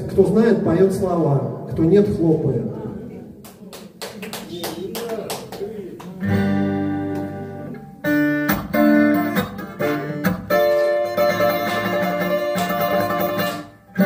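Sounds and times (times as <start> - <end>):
acoustic guitar strumming: 6.2 - 14.0.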